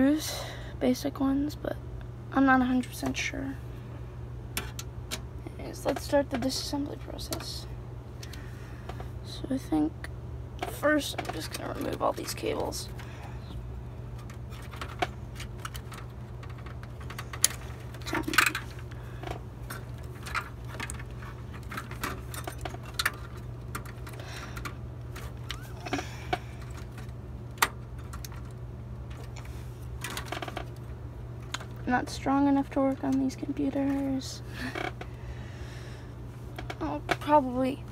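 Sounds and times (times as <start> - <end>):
steady low hum: 0.0 - 37.9
plastic connectors and metal rattling: 4.6 - 7.6, 10.6 - 13.1, 14.2 - 31.9.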